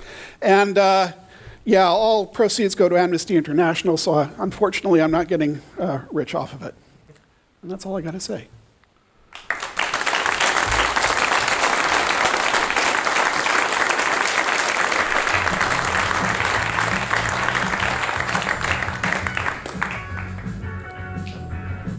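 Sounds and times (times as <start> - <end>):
audience applauding: 9.3 - 21.4
music with bass line: 15.3 - 21.9.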